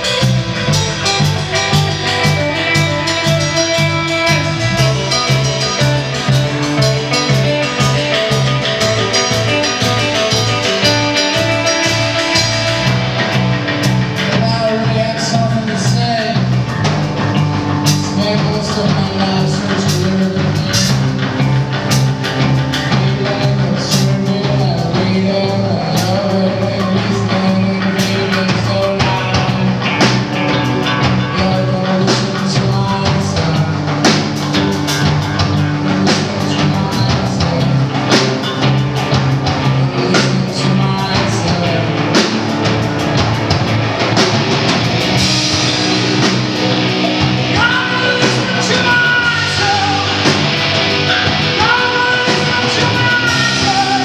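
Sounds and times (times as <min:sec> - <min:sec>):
drum kit hits: 0:00.0 - 0:14.7, 0:33.4 - 0:54.0
bass guitar: 0:00.0 - 0:54.0
distorted electric guitar: 0:00.0 - 0:54.0.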